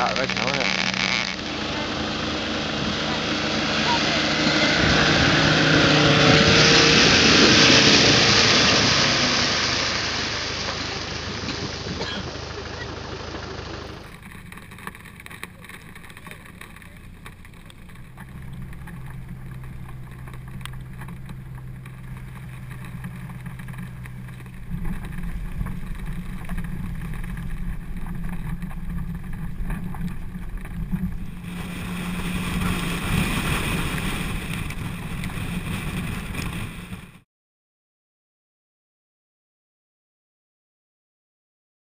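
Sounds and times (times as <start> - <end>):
vehicle engine running: 0.0 - 37.2
wind rushing over camera: 16.1 - 37.2.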